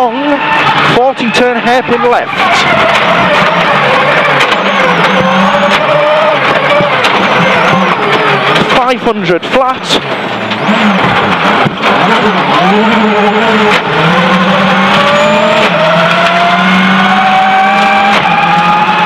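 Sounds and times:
gravel and road noise: 0.0s - 19.0s
quick gear changes: 0.0s - 19.0s
rally car engine at full throttle: 0.0s - 19.0s.

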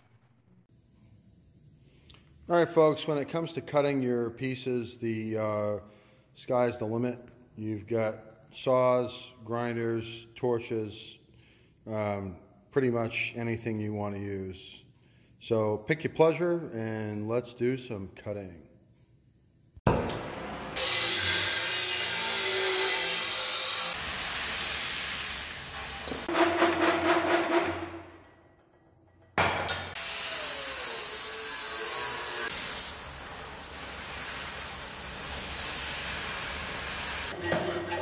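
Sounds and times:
cutting torch hissing: 23.4s - 26.3s, 32.1s - 37.4s.

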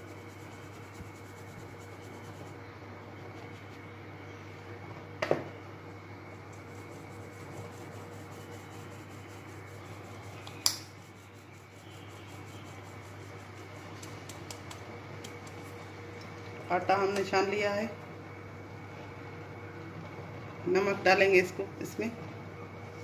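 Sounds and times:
flour sifting through a sieve: 0.0s - 2.6s, 6.6s - 15.8s.

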